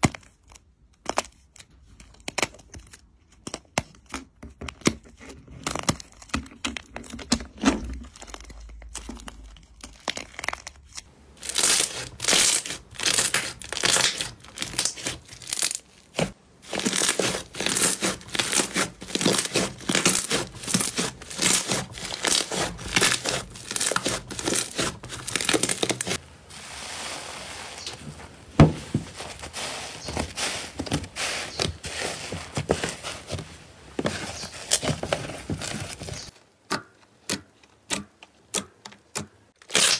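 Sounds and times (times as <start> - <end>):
slime crackling and tearing: 7.6 - 26.2, 39.6 - 39.9.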